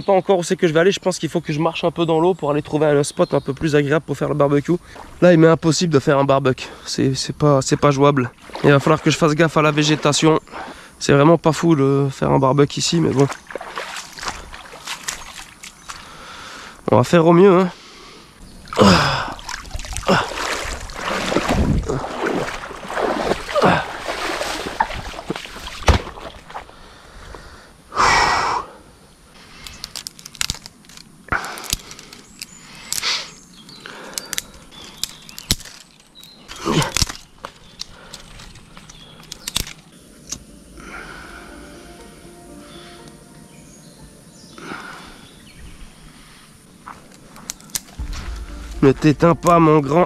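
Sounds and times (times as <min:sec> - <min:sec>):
swishes and knocks of movement: 0:48.0 - 0:50.0.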